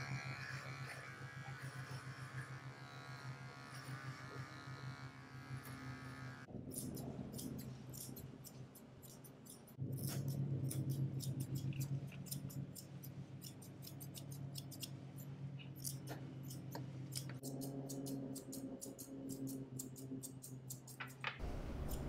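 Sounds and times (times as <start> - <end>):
shears snipping dog fur: 0.0 - 22.0
low steady hum: 21.4 - 22.0.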